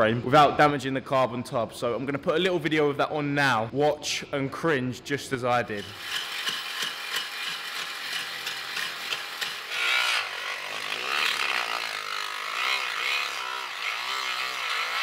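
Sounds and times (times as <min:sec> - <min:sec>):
angle grinder cutting metal: 0:05.8 - 0:15.0.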